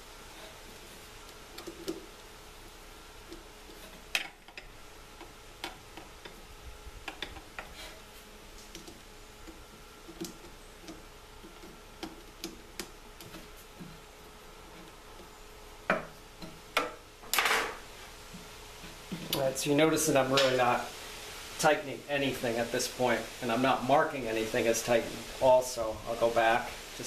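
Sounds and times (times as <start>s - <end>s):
screwdriver metal clicks and taps: 7.0s - 7.7s, 8.7s - 13.4s.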